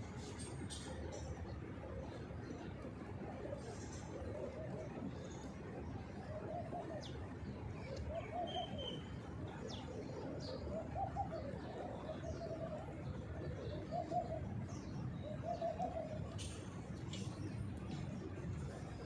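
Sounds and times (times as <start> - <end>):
small birds chirping: 3.6 - 19.0
pigeons cooing: 7.8 - 18.0.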